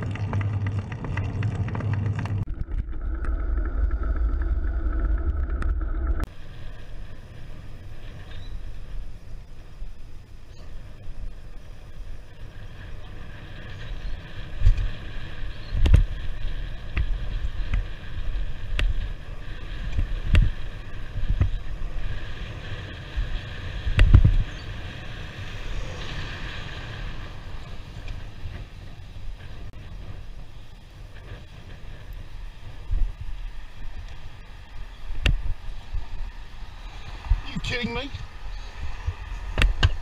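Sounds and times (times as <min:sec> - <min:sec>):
low road rumble: 0:00.0 - 0:40.0
wind on microphone: 0:00.0 - 0:40.0
vehicle passing: 0:24.7 - 0:28.6.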